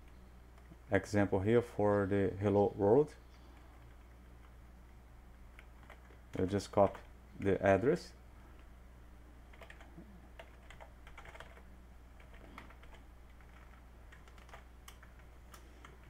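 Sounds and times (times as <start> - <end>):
low electrical hum: 0.0 - 16.0
typing on computer keyboard: 5.5 - 7.1, 9.5 - 11.6, 12.2 - 16.0.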